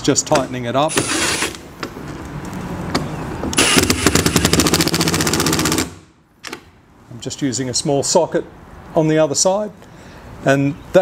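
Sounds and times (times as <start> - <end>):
cordless drill driving a screw: 0.9 - 1.6, 3.6 - 4.6
loud rapid rattle: 3.6 - 6.0.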